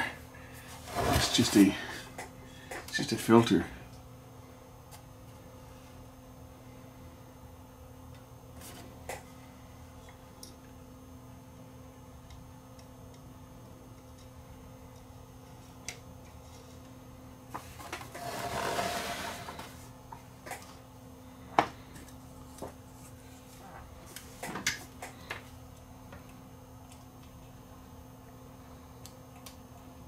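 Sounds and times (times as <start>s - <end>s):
faint steady hum: 0.0s - 30.0s
plastic tv scraping on bench: 0.9s - 1.6s, 18.2s - 19.7s.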